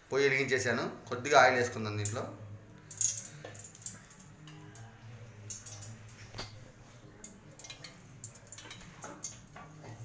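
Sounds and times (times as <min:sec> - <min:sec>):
mustard seeds popping in oil: 0:02.8 - 0:04.3.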